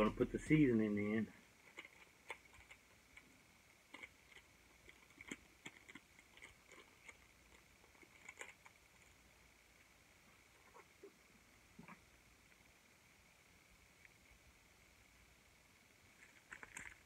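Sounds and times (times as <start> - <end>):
seasoning packet crinkling and tearing: 16.2 - 17.0.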